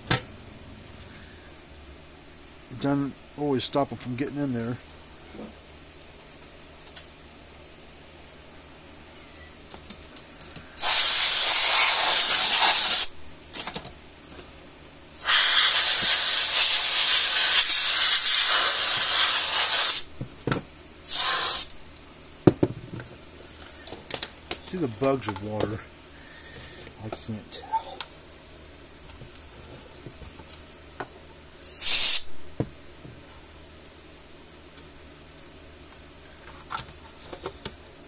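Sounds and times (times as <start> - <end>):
aerosol can hissing: 10.8 - 13.1, 15.2 - 20.1, 21.0 - 21.7, 31.6 - 32.3.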